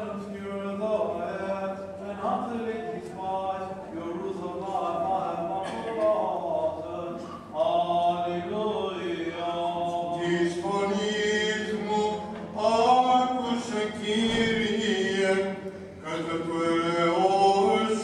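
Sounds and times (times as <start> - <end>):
men chanting a hymn: 0.0 - 18.0.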